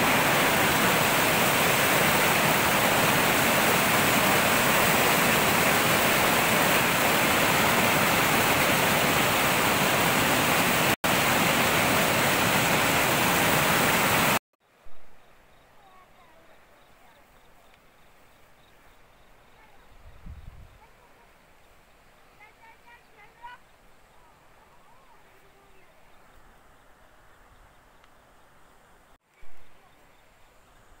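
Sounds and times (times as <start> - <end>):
stream rushing: 0.0 - 14.4.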